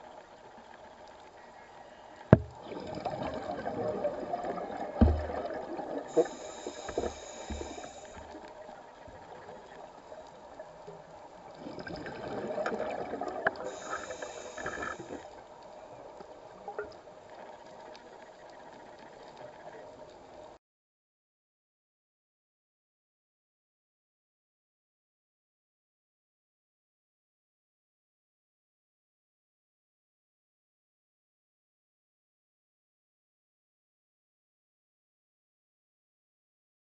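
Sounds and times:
dull knocks: 2.4s - 2.6s, 5.0s - 5.4s
gurgling exhaled bubbles: 2.4s - 8.3s, 11.6s - 15.2s
diver breathing through regulator: 6.0s - 8.4s, 13.6s - 15.2s.

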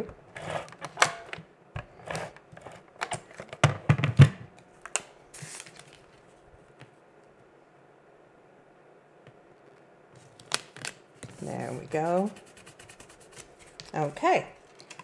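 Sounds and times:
paper rustling: 5.4s - 6.4s, 12.6s - 15.0s.

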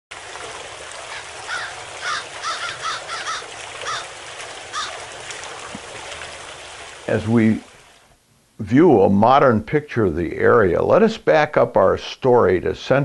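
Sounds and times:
background hiss: 0.3s - 13.0s
bird calling: 1.1s - 5.0s.

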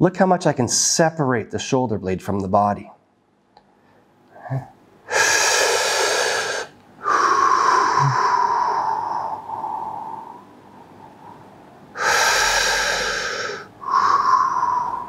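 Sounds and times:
person breathing in: 3.8s - 15.0s
whistling breath out: 13.2s - 15.0s.

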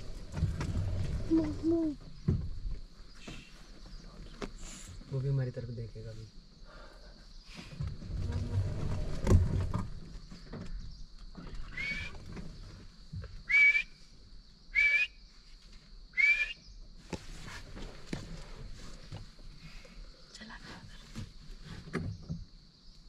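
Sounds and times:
low rumbling: 0.0s - 3.3s, 7.8s - 11.0s
high insect hum: 0.0s - 23.0s
bird calling: 1.0s - 2.4s, 11.3s - 12.4s, 13.4s - 15.2s, 16.2s - 16.8s.

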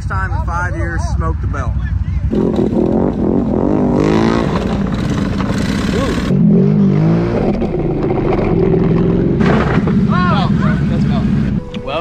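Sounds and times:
quad engine revving: 2.3s - 11.6s.

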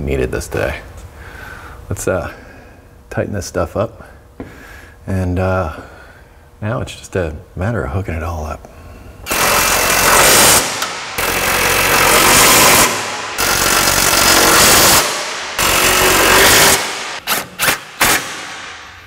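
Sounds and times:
impact wrench hammering bolts: 9.3s - 19.0s.

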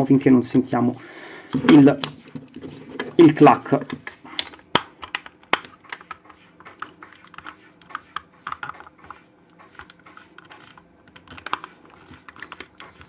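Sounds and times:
plastic toy parts clicking: 3.8s - 9.2s, 9.8s - 13.0s.

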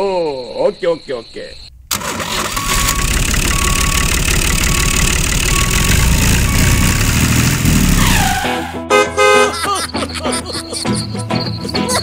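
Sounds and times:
tractor engine rumbling: 1.6s - 8.7s.

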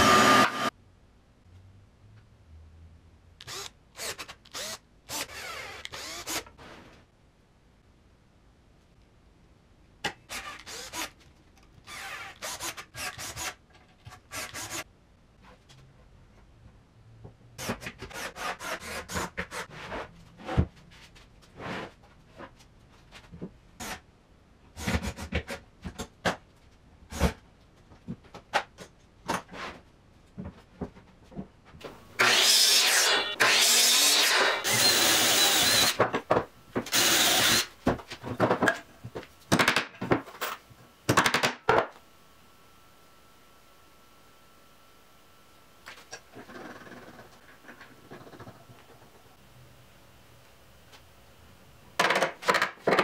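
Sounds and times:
cordless drill running: 0.0s - 0.7s, 3.5s - 6.4s, 32.2s - 36.0s, 36.9s - 37.7s
wood panels and tools clattering: 30.4s - 42.0s.

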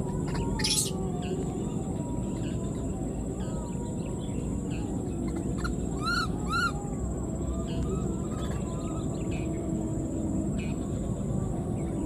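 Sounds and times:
low background noise: 0.0s - 12.0s
faint monkey calls: 0.1s - 9.6s
baby monkey crying: 0.5s - 1.0s, 6.0s - 6.8s.

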